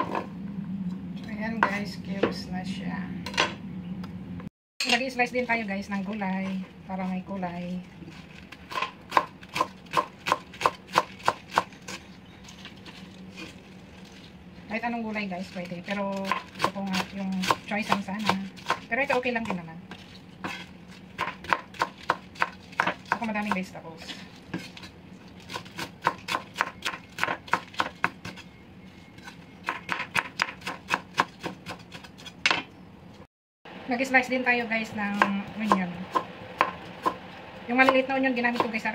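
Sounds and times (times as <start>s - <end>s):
knife chopping on wooden board: 16.2s - 19.6s, 20.4s - 23.7s, 25.5s - 28.4s, 29.2s - 32.6s.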